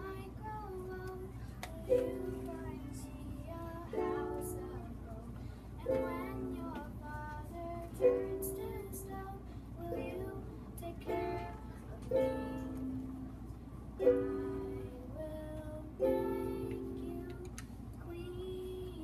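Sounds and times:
ukulele strummed chords: 0:01.7 - 0:03.1, 0:03.8 - 0:05.2, 0:05.8 - 0:15.2, 0:15.9 - 0:17.5.

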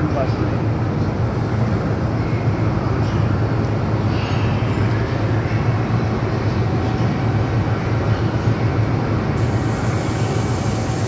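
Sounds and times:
machine drone with low hum: 0:00.0 - 0:11.0
high hiss: 0:09.4 - 0:11.0.

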